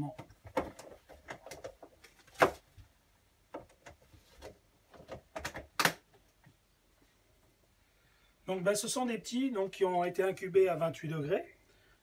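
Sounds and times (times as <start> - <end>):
plastic tubs knocking and clicking: 0.0 - 2.8, 3.5 - 6.6.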